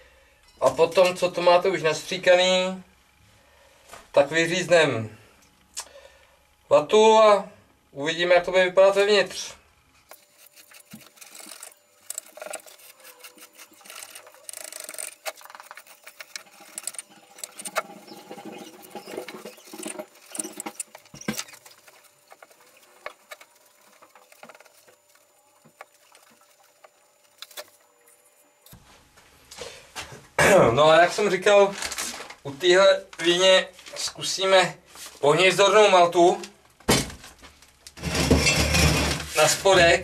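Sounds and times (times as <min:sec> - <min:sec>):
knife scratching and rasping: 0:10.1 - 0:28.6.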